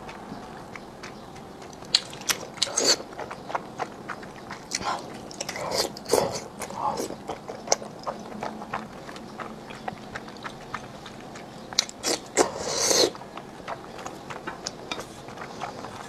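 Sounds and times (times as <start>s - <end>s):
person chewing noodles: 0.0s - 16.0s
slurp: 11.8s - 13.2s.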